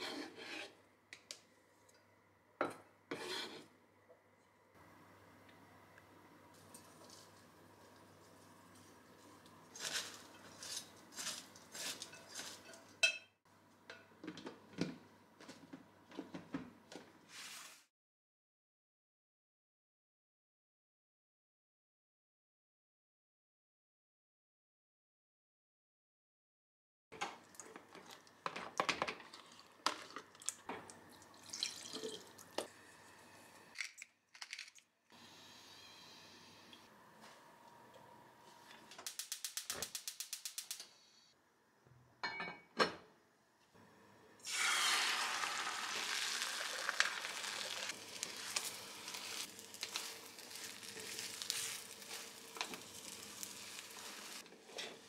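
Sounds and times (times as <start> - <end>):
liquid splashing into pot: 31.2 - 32.5
tongs tossing coleslaw: 44.5 - 54.4.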